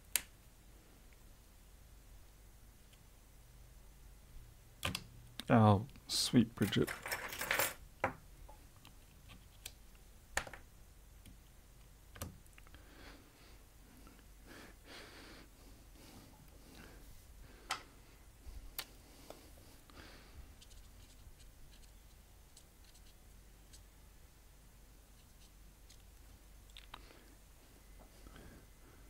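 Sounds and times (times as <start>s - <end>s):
small parts clicking and tapping: 6.6s - 12.8s.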